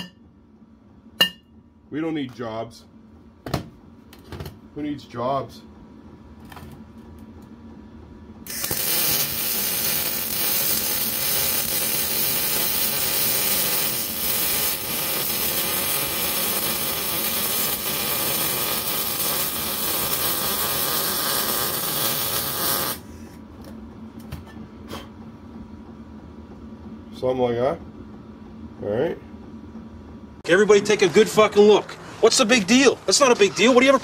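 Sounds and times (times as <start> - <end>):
welding arc sizzling: 8.4 - 23.2.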